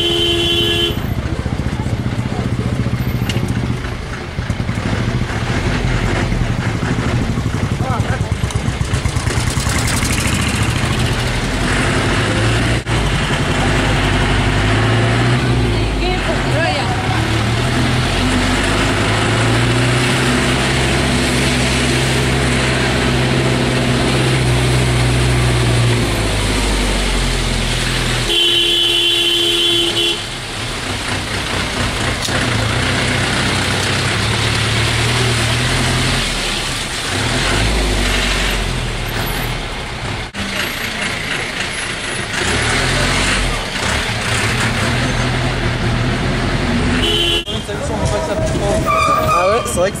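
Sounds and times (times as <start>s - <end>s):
vehicle engine humming: 0.0s - 50.0s
horn blast: 28.2s - 30.4s, 46.9s - 47.8s, 48.5s - 49.9s.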